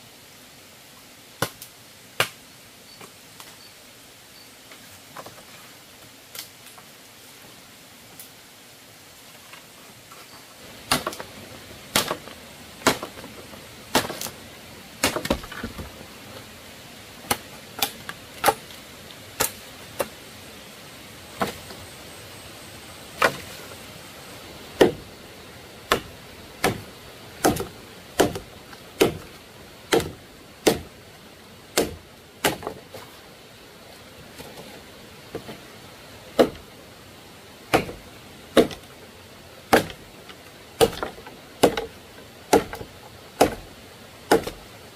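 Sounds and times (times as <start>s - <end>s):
blade chopping: 10.8s - 11.3s, 11.9s - 13.3s, 13.9s - 14.4s, 15.0s - 15.8s, 24.8s - 25.1s, 25.9s - 29.3s, 29.9s - 31.0s, 31.7s - 32.8s, 39.7s - 40.0s, 42.5s - 43.7s, 44.3s - 44.6s.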